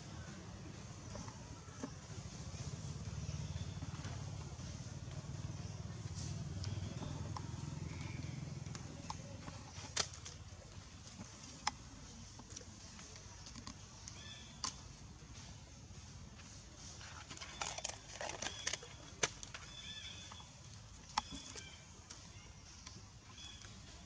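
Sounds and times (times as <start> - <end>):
sharp clicks and crackles: 6.0 - 15.5, 17.0 - 24.0.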